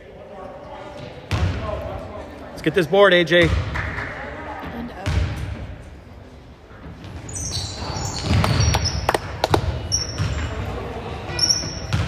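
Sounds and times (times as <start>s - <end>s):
basketball bouncing: 5.0s - 5.4s, 8.0s - 10.5s, 11.7s - 12.0s
sneakers squeaking on gym floor: 6.8s - 12.0s.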